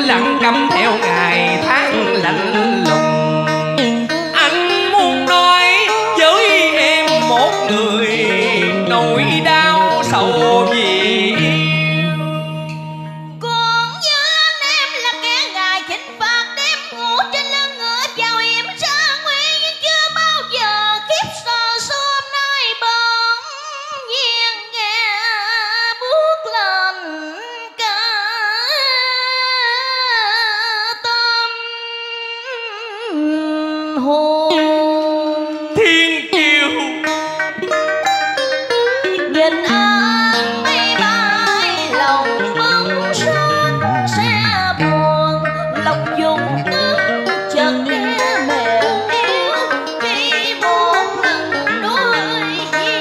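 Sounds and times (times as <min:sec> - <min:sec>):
guitar: 0:00.0 - 0:23.0, 0:34.4 - 0:53.0
woman singing with vibrato: 0:00.0 - 0:36.8, 0:39.0 - 0:53.0.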